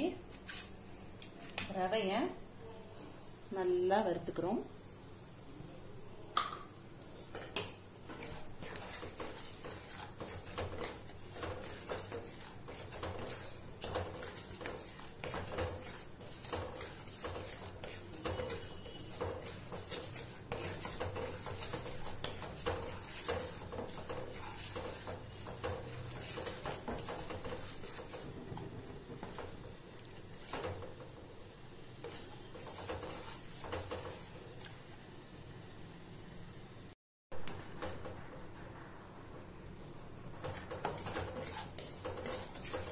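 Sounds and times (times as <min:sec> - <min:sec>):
wooden spatula scraping pan: 0:07.0 - 0:31.1, 0:32.0 - 0:34.4, 0:40.3 - 0:42.9.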